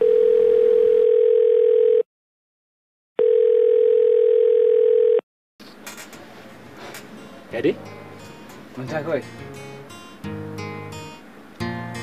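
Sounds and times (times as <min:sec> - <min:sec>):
telephone ringback tone: 0:00.0 - 0:02.0, 0:03.2 - 0:05.2.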